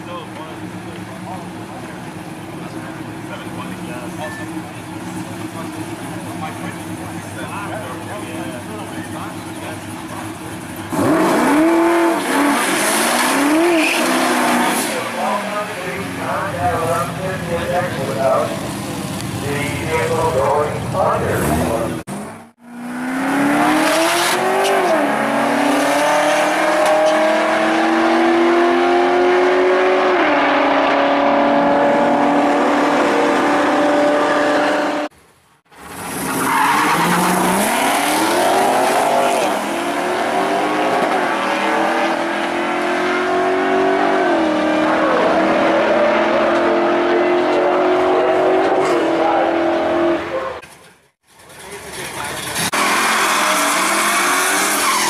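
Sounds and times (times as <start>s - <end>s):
car engines revving hard: 0.0s - 35.1s, 35.8s - 50.6s, 51.8s - 55.0s
tyre squeal: 13.4s - 14.8s, 52.7s - 55.0s.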